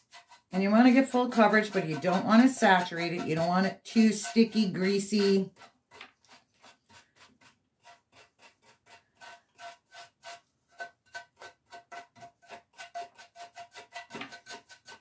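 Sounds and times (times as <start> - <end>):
brush swishing over a surface: 0.0 - 5.6.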